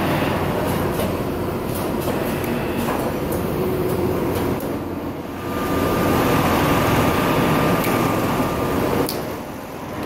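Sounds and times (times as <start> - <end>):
factory machine hum: 0.0 - 10.0
thin steady whine: 3.4 - 10.0.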